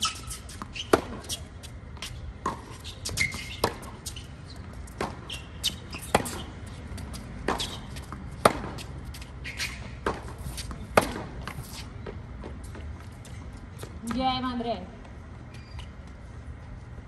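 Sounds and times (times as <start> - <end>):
racquets hitting tennis ball: 0.0 - 13.0.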